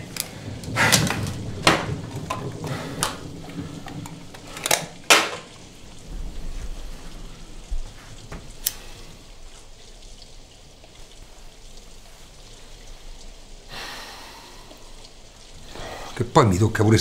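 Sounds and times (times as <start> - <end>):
low rumble: 5.7 - 8.6.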